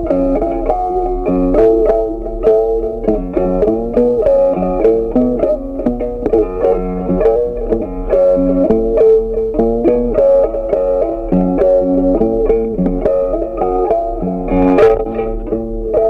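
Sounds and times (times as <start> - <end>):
plucked-string melody: 0.0 - 16.0.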